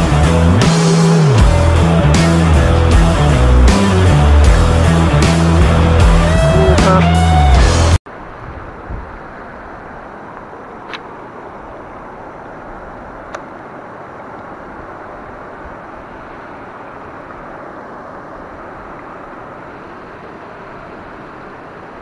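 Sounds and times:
river water over rocks: 0:08.1 - 0:22.0.

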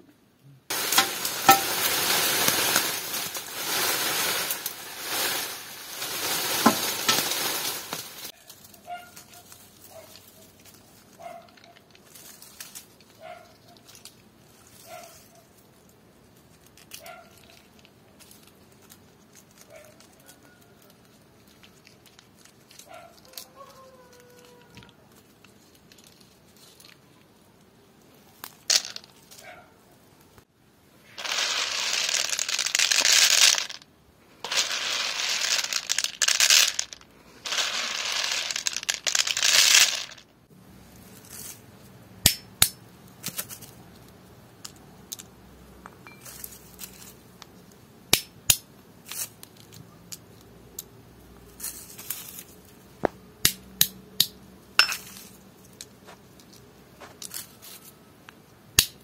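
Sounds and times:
rustling and crackling of dry husks: 0:00.7 - 0:59.0
hammer cracking nut shells: 0:42.2 - 0:42.8, 0:48.1 - 0:48.6.

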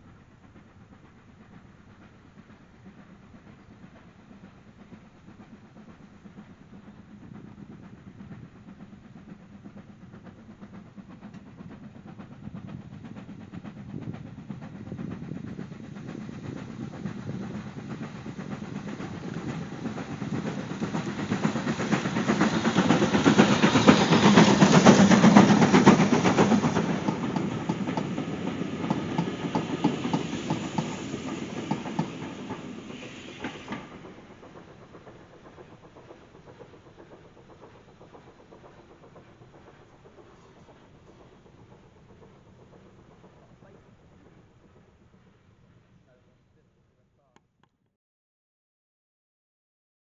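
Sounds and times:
steam locomotive exhaust: 0:00.0 - 0:47.4
coaches clicking over rail joints: 0:13.0 - 0:46.2.

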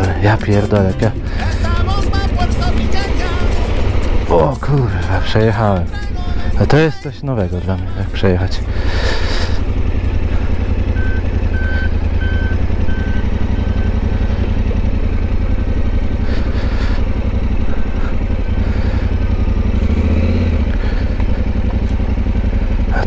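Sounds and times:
motorcycle engine running: 0:00.0 - 0:23.0
high electronic beeps: 0:10.9 - 0:14.0.

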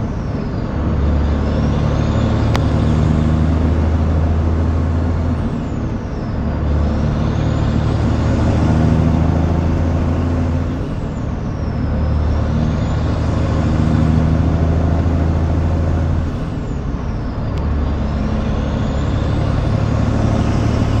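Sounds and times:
truck diesel engine: 0:00.0 - 0:21.0.

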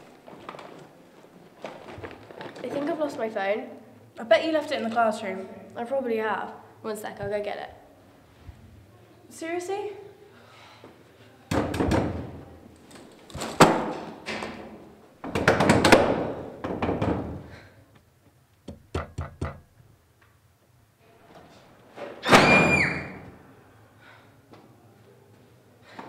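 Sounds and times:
fist knocking on door: 0:18.7 - 0:19.6.

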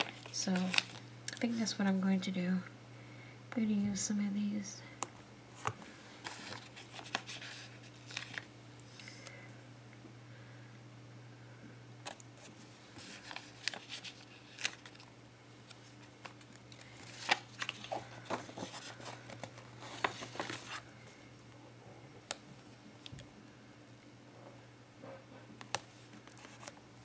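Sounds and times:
paper tape rustling and crinkling: 0:00.0 - 0:01.6, 0:05.6 - 0:09.1, 0:12.0 - 0:20.9, 0:26.1 - 0:26.8
faint low hum: 0:00.0 - 0:27.0.

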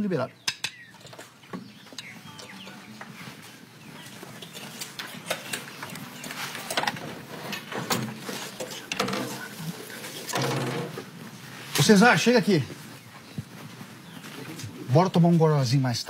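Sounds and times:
knocks and clatter of instruments: 0:04.2 - 0:11.1.

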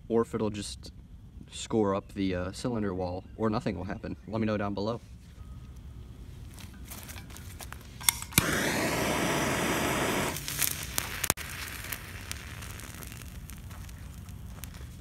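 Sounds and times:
thermite burning with loud hiss: 0:06.6 - 0:15.0
pops and crackles: 0:07.1 - 0:15.0
thermite igniting with sharp pops: 0:07.1 - 0:15.0.

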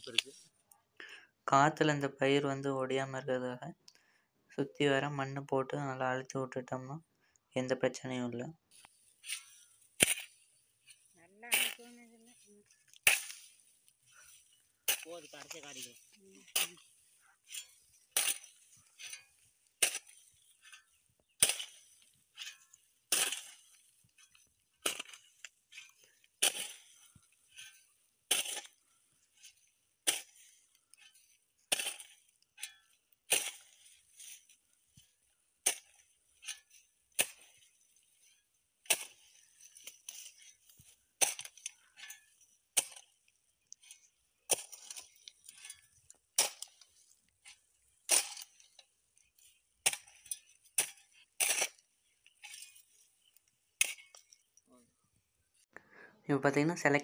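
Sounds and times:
hoe striking dry soil: 0:08.7 - 0:54.6
faint scraping of soil: 0:08.7 - 0:55.7.

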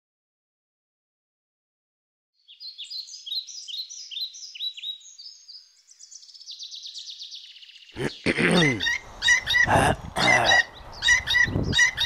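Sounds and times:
songbird chirping: 0:02.4 - 0:12.0
bird trilling: 0:07.9 - 0:12.0.

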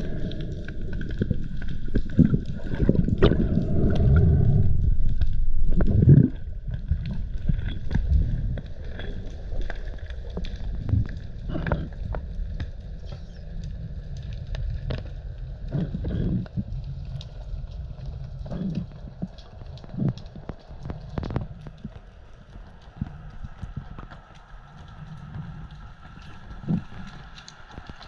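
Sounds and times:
underwater rumbling surges: 0:00.0 - 0:13.0
small underwater clicks: 0:00.0 - 0:28.0.

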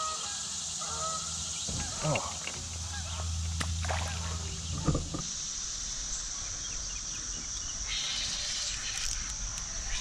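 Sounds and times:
high-pitched insect drone: 0:00.0 - 0:10.0
low hum: 0:01.2 - 0:07.8
lower buzz: 0:01.2 - 0:10.0.

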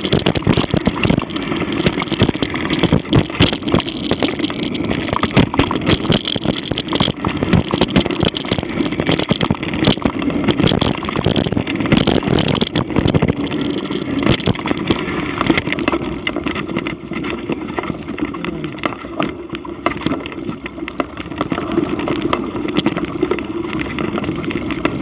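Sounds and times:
bike rattling and knocking: 0:00.0 - 0:16.0
bike tyres rumbling on dirt: 0:00.0 - 0:18.7.

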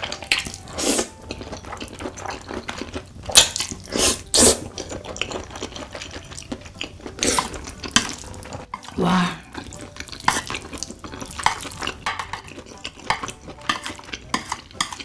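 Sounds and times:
loud wet noodle slurps: 0:00.8 - 0:01.1, 0:03.7 - 0:04.7.

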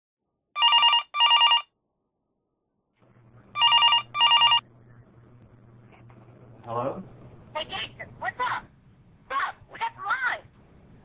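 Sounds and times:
phone ringing: 0:00.6 - 0:01.7, 0:03.6 - 0:04.6.

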